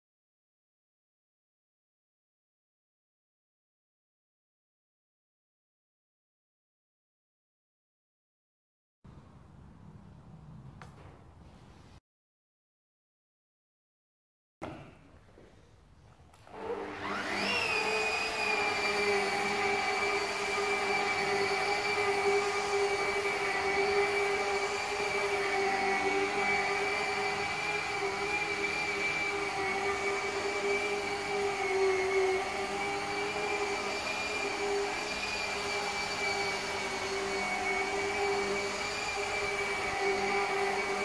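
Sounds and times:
power tool motor whining: 16.4s - 41.0s.

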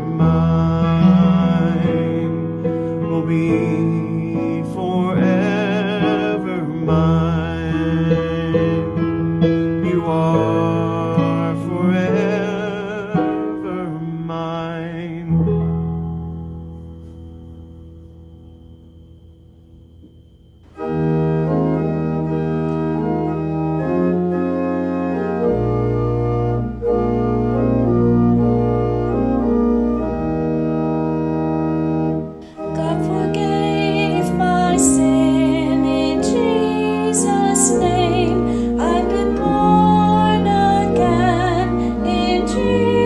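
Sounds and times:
organ playing held chords: 0.0s - 43.0s
solo voice singing with vibrato: 32.6s - 43.0s.

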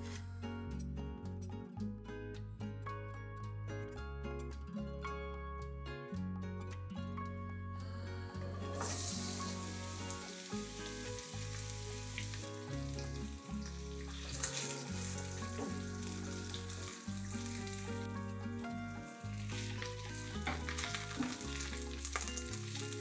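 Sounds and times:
onions sizzling in hot oil: 8.8s - 23.0s.

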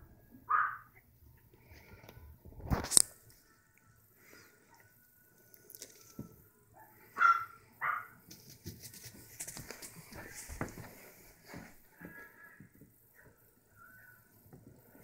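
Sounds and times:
puppy yipping: 0.5s - 0.9s, 6.8s - 8.2s
handling rustles: 8.3s - 12.2s.

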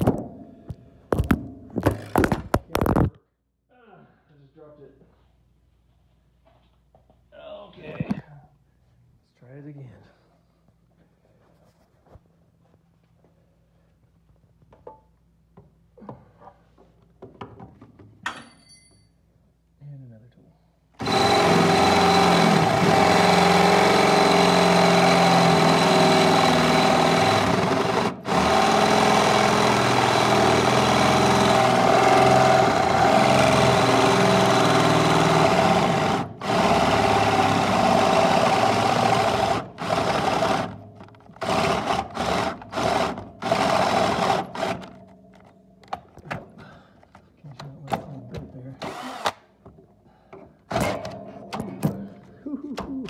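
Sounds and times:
electric drill boring through metal: 21.0s - 40.8s, 41.4s - 45.0s, 48.8s - 49.4s.

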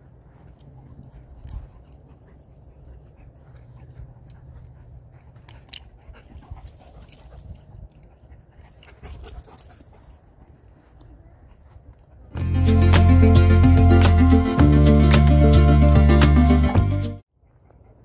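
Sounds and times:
dogs panting and scuffling: 0.0s - 12.4s.

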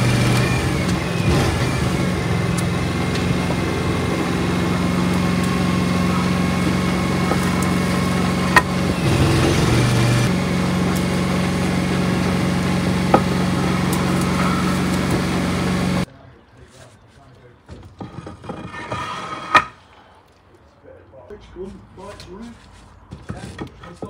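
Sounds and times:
engine running steadily: 0.0s - 16.1s.

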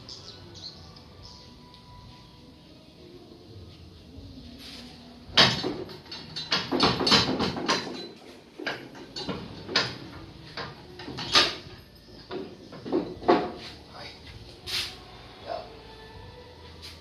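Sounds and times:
gearbox metal knocks and clunks: 5.3s - 13.6s.

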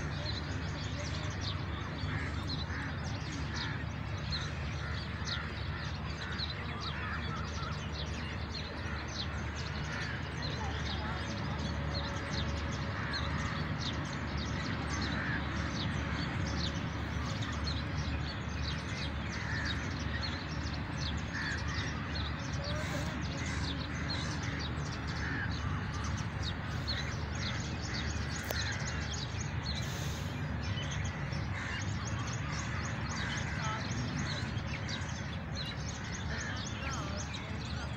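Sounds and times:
birds chirping: 0.0s - 37.9s
caw-like bird calls: 18.7s - 20.5s, 21.1s - 36.9s.

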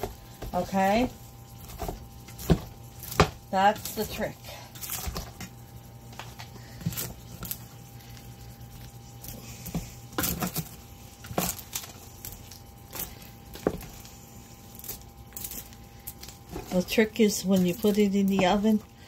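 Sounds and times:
popcorn rustling: 0.0s - 19.0s.

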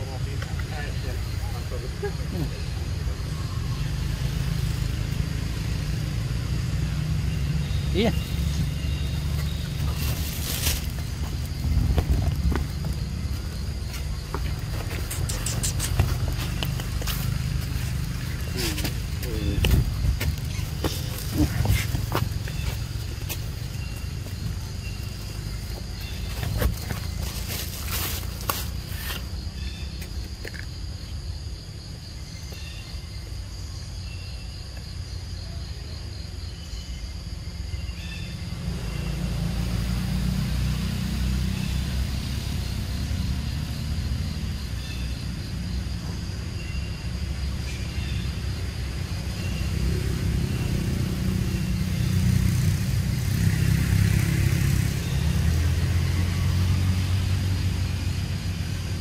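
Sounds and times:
faint chirps: 13.0s - 28.2s.

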